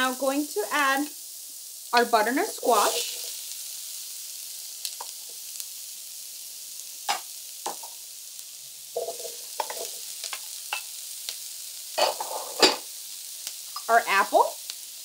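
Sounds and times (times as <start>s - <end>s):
onion and garlic sizzling in oil: 0.0s - 15.0s.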